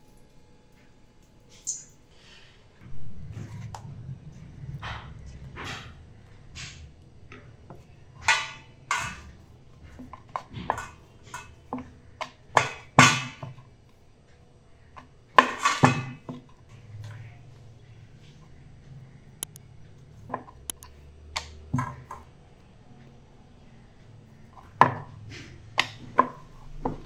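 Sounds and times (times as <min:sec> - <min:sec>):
dough rolled on wooden board: 0:24.3 - 0:27.0.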